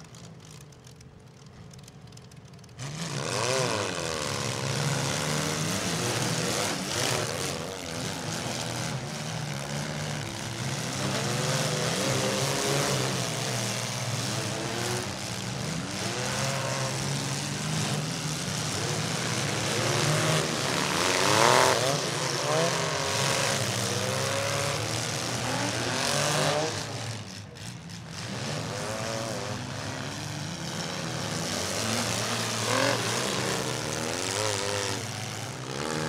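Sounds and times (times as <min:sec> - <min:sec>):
car engines revving: 0:00.0 - 0:36.0.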